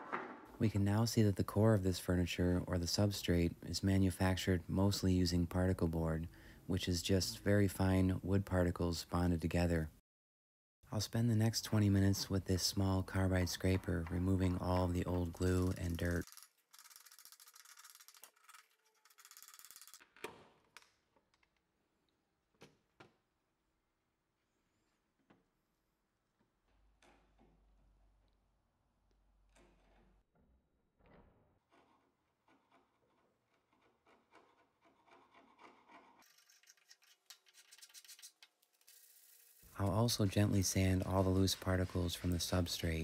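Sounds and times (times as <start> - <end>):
sharp knocks: 0.0 - 0.5
scraper rasping on wood edge: 31.8 - 37.0.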